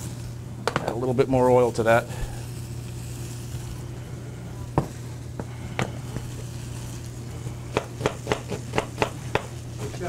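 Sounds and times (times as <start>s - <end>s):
knife chopping on cutting board: 7.7s - 9.6s.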